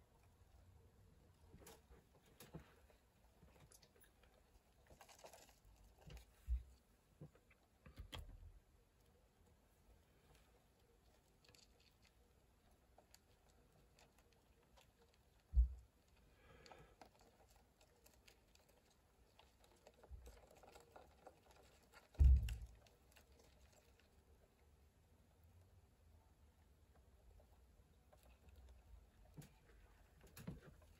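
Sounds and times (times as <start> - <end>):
mantis chewing with clicks and crackles: 10.0 - 24.8.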